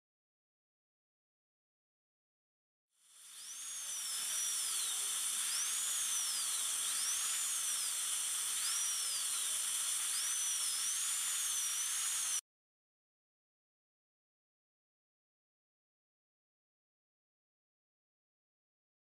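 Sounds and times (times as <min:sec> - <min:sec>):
dental drill hiss and whine: 0:03.0 - 0:12.4.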